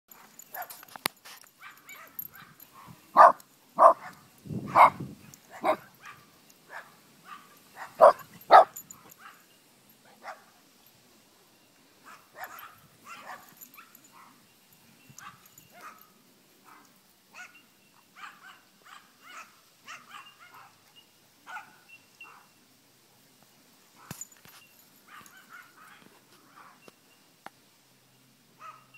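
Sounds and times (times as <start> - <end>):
small dogs yapping: 1.6 - 9.4.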